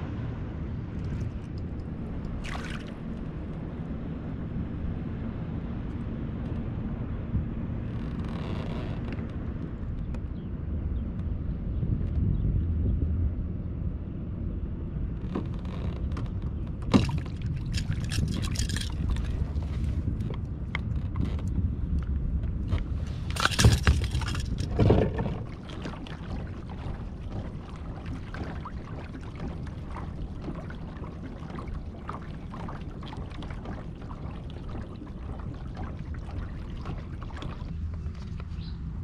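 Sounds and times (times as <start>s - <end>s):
low rumble: 0.0s - 39.0s
water lapping against kayak: 0.8s - 5.2s, 15.2s - 39.0s
loud knocking and splashing: 2.3s - 3.0s, 16.8s - 19.5s, 23.2s - 38.3s.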